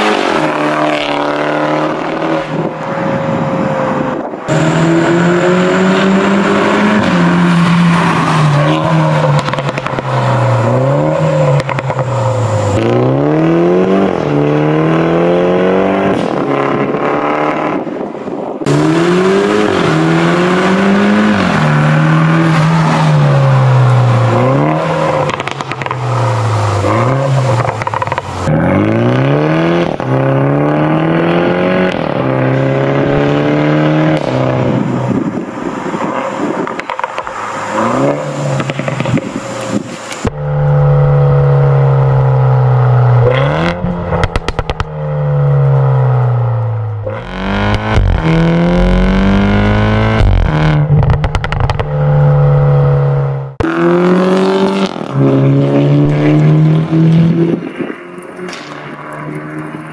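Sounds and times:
car engine accelerating hard: 4.5 - 17.8, 18.6 - 35.2, 37.6 - 59.9
exhaust pops: 25.1 - 26.2, 43.2 - 45.0, 47.0 - 52.6.

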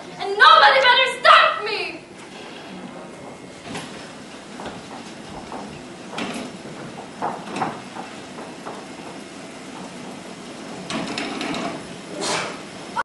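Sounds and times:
footsteps on wooden stage: 2.8 - 11.9.

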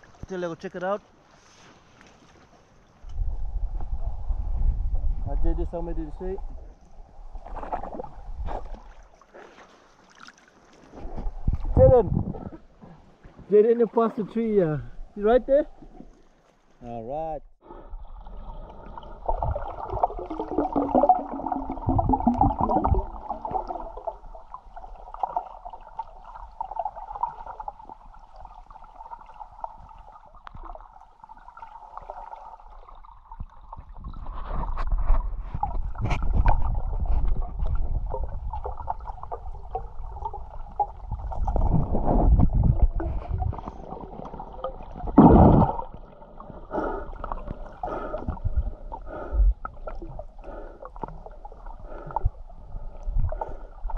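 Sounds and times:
low underwater rumbling: 3.1 - 9.2, 17.5 - 53.9
water gurgling underwater: 17.9 - 53.9.

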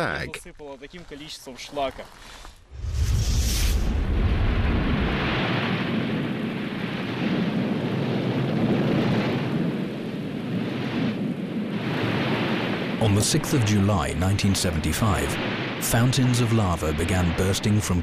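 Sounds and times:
steady rushing noise: 2.6 - 18.0
volcanic eruption rumbling burst: 2.7 - 13.9.

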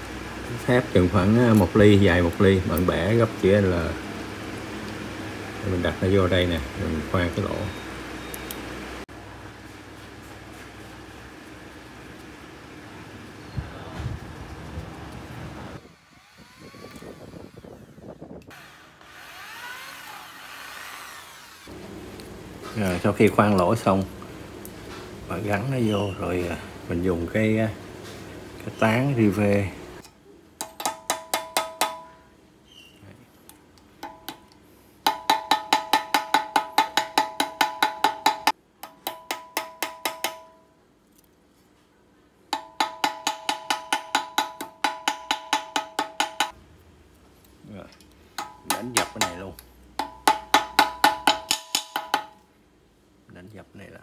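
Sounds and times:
electric drill motor whine: 15.8 - 21.7
hammer tapping on metal: 30.6 - 32.2, 34.0 - 40.7, 42.5 - 46.6, 48.4 - 52.5.

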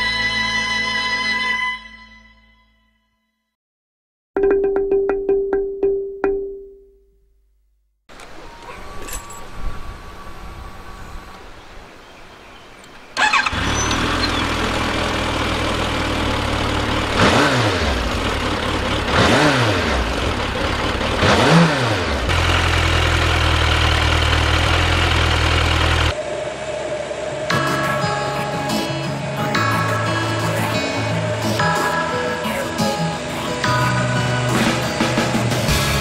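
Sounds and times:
motorcycle engine idling: 13.2 - 26.2
motorcycle engine revving: 13.2 - 28.1.

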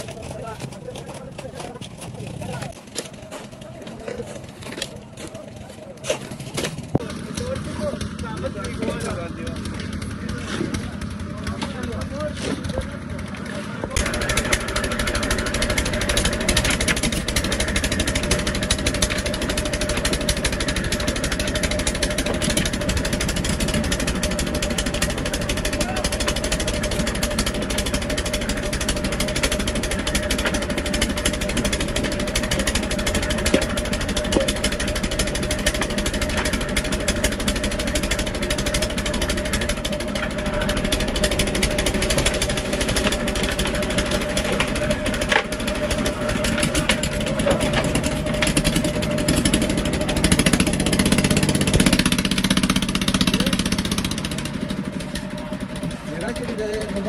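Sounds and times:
concrete mixer engine running: 0.0 - 57.0
mixer drum clattering: 14.0 - 57.0.

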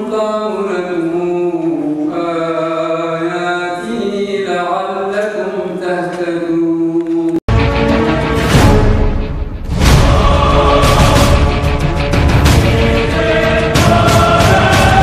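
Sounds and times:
man chanting recitation: 0.0 - 7.4.

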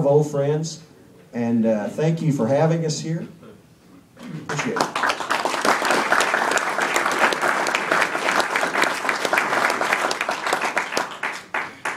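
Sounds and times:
audience applauding: 4.5 - 11.9.

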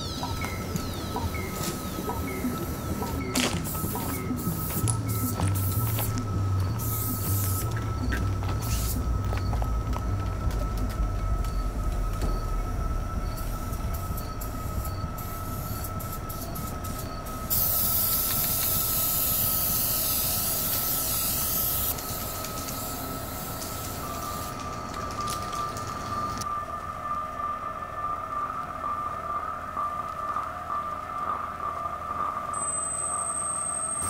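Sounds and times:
steady hum with high whine: 0.0 - 34.0
scattered clicks: 0.2 - 12.7, 13.3 - 26.5
spray paint can hissing: 3.3 - 7.8, 8.6 - 9.0, 15.2 - 24.6.

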